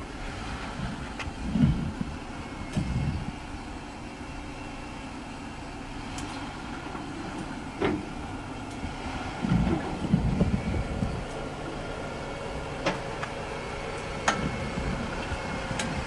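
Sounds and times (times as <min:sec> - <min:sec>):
engine running at low revs: 0:00.0 - 0:16.0.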